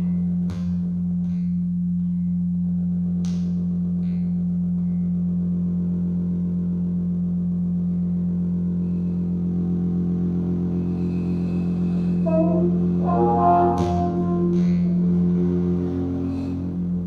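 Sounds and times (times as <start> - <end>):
low electronic drone: 6.4 - 17.0
muted trumpet short notes: 12.2 - 15.4.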